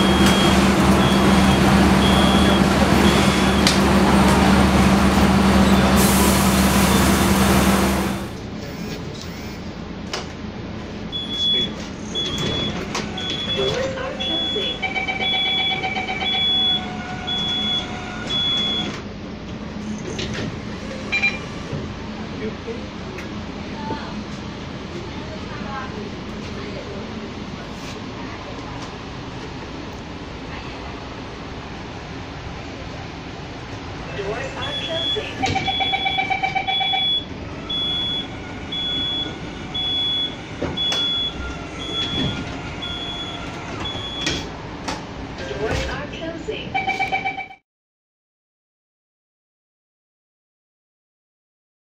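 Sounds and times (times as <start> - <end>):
high warning beeps: 0.0 - 3.8, 11.1 - 18.9, 34.5 - 44.4, 46.8 - 47.6.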